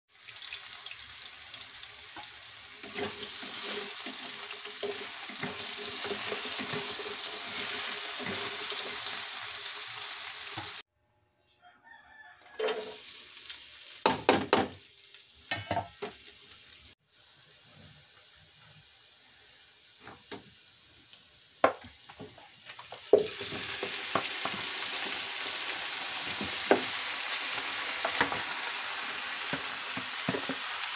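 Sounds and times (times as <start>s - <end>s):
vegetables sizzling in oil: 0.1s - 10.8s, 12.6s - 30.9s
stirring knocks and scrapes in pan: 2.1s - 9.1s, 21.6s - 25.2s, 29.5s - 30.7s.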